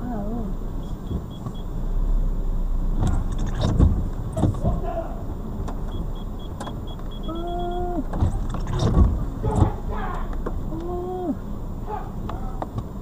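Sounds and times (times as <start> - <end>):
car cabin rumble and hiss: 0.0 - 13.0
high electronic beep: 5.9 - 8.0
person calling out: 7.3 - 8.1, 9.4 - 12.2.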